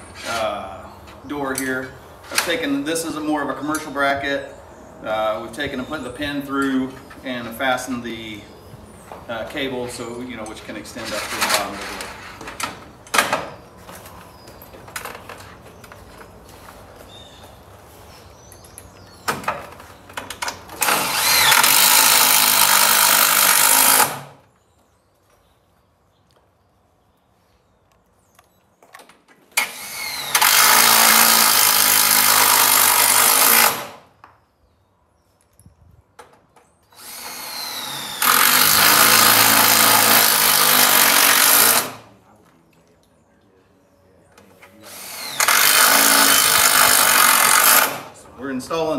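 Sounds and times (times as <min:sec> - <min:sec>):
cordless drill driving screw: 0:20.8 - 0:24.3, 0:29.6 - 0:34.0, 0:36.9 - 0:42.0, 0:44.9 - 0:48.0.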